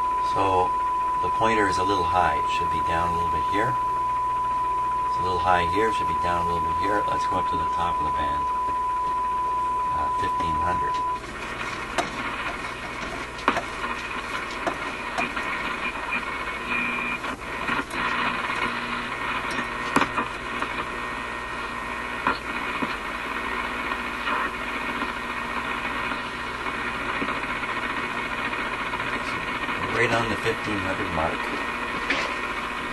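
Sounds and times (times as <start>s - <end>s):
radio whistle: 0.0s - 12.8s, 13.5s - 32.9s
radio static hiss and crackle: 0.0s - 32.9s
radio clicks: 10.8s - 21.0s, 21.6s - 32.8s.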